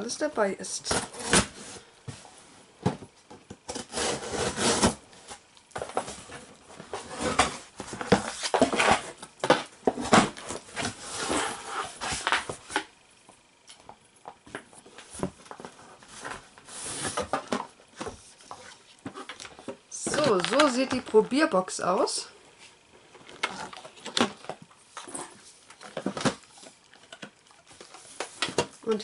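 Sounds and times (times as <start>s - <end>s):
cardboard flaps rubbing and scraping: 3.7s - 5.0s.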